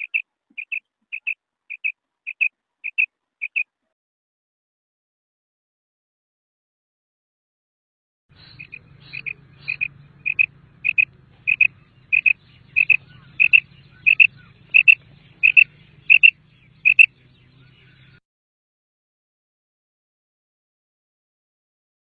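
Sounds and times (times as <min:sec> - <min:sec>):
quail calling: 0:00.0 - 0:03.7, 0:08.4 - 0:18.2
faint low hum: 0:08.4 - 0:18.2.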